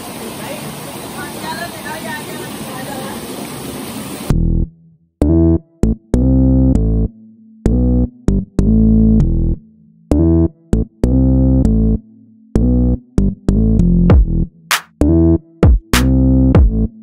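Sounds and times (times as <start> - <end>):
electronic music keyboard stabs: 13.5 - 16.9.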